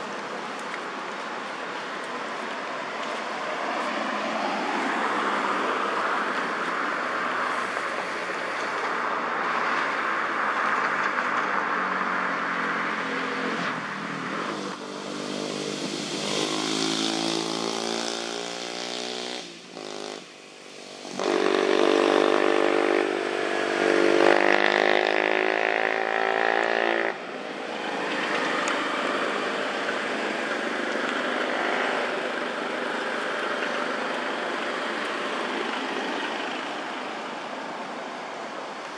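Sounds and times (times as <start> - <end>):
traffic hum: 0.0 - 38.9
engine drone: 13.4 - 37.4.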